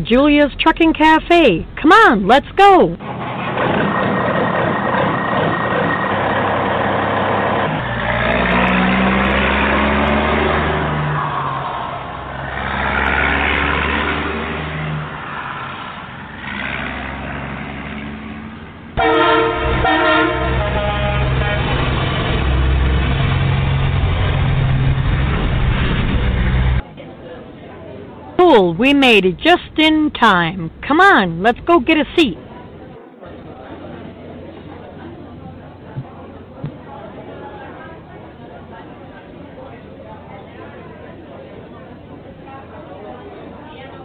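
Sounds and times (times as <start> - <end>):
air horn blast: 19.0 - 21.8.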